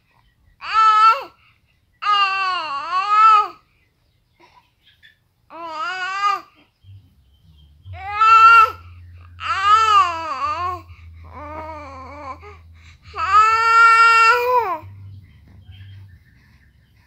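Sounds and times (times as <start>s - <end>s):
infant crying: 2.0s - 3.6s, 5.5s - 6.5s, 7.9s - 14.9s.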